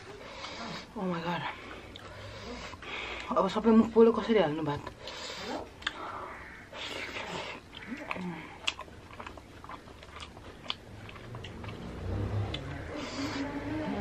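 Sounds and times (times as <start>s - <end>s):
man chewing with wet smacks: 5.6s - 6.1s, 6.7s - 13.3s.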